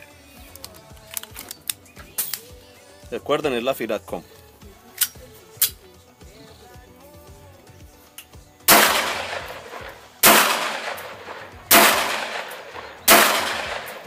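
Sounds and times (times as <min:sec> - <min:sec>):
pistol shots with echo: 0:08.7 - 0:14.0.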